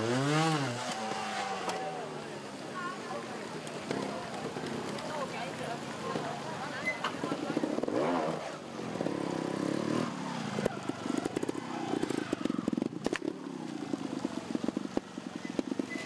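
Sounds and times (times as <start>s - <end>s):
motorcycle engine revving: 0.0s - 2.2s, 7.2s - 16.0s
engine knocks and pops: 12.4s - 16.0s.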